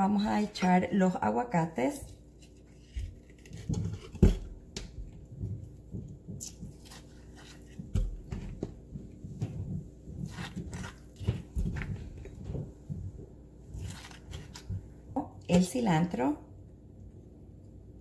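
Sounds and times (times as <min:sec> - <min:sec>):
spoon scraping avocado flesh: 0:02.4 - 0:04.1, 0:10.2 - 0:12.4, 0:13.7 - 0:14.8.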